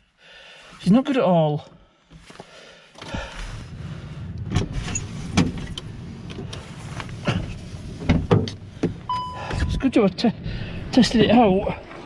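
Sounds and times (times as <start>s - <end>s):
low rumble: 3.1s - 12.0s.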